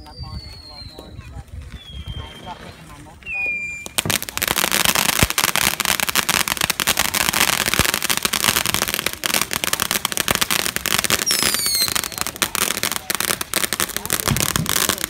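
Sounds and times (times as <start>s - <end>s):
firework crackling: 0.0s - 15.0s
falling whistle: 1.8s - 4.0s.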